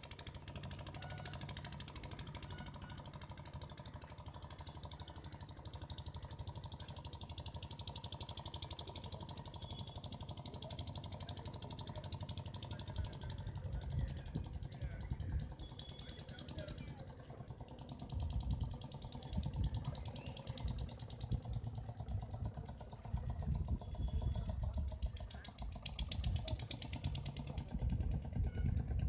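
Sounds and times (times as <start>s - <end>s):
outboard motor chugging: 0.0s - 29.0s.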